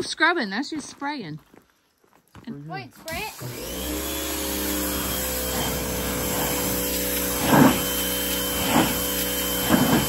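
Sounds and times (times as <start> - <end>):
pressure washer running: 3.1 - 10.0.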